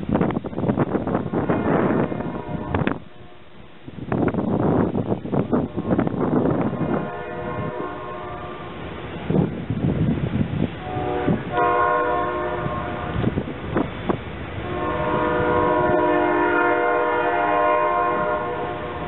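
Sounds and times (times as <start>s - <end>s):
train rumble and knocks: 0.0s - 19.0s
locomotive air horn: 1.2s - 3.5s, 5.6s - 9.0s, 10.8s - 13.5s, 14.6s - 19.0s.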